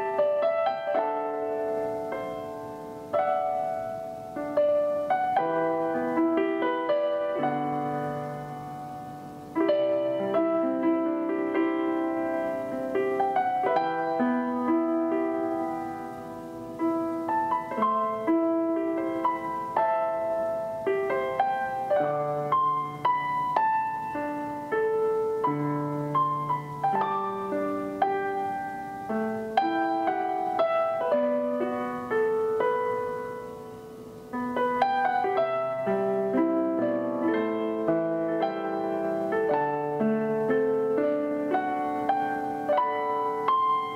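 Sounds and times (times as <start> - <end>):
background piano music: 0.0 - 43.9.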